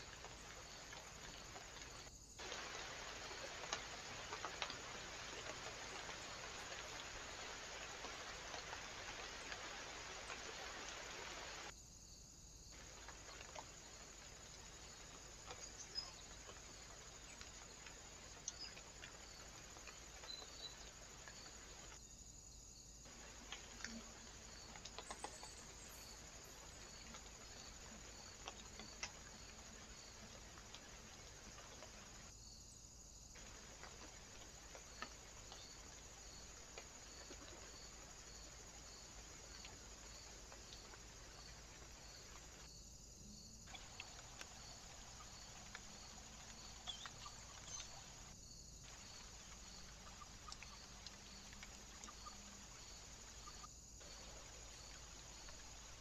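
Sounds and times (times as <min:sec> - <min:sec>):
microphone hiss: 0:00.0 - 0:11.8.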